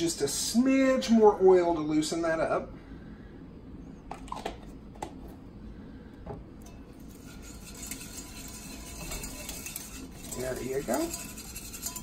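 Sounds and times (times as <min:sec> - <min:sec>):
whisk scraping a saucepan: 0:06.6 - 0:12.0.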